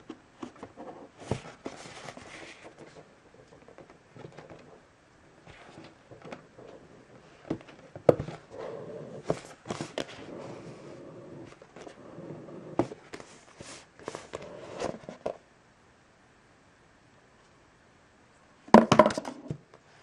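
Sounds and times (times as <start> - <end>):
cardboard rubbing against cardboard: 0.6 - 3.1
taps and knocks on box: 18.7 - 19.6.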